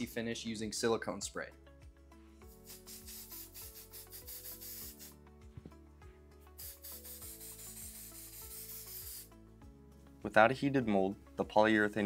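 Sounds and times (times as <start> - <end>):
background music with steady beat: 0.0 - 12.0
aerosol spray hissing: 2.4 - 5.2, 6.5 - 9.4.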